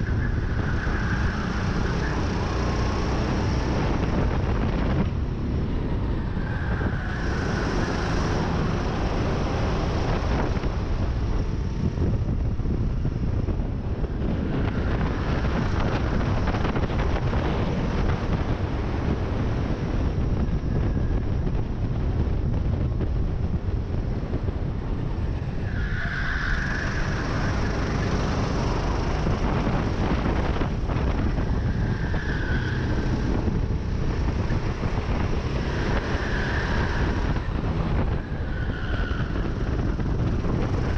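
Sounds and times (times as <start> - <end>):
wind buffeting microphone: 0.0 - 40.9
kart engine running hard: 26.9 - 31.7.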